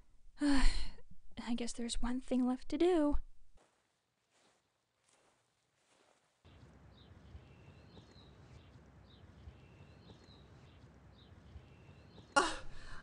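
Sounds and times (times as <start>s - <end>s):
small birds chirping: 6.5s - 13.0s.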